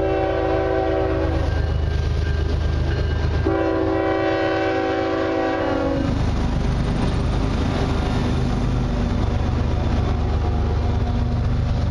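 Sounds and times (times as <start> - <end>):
locomotive horn blasts: 0.0 - 1.4, 3.4 - 6.2
diesel locomotive rumble: 0.0 - 11.9.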